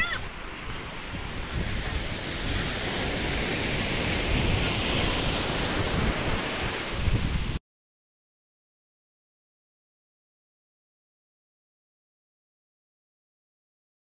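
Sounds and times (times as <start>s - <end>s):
sea surf washing on beach: 0.0s - 7.6s
wind rumbling on microphone: 0.0s - 7.6s.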